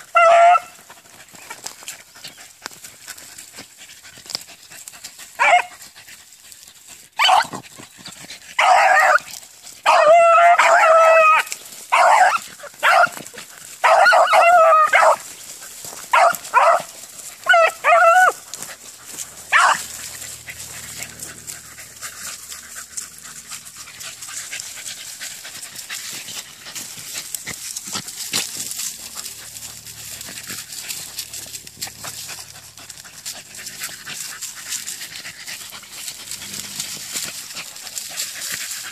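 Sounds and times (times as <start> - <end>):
hound baying: 0.0 - 38.9.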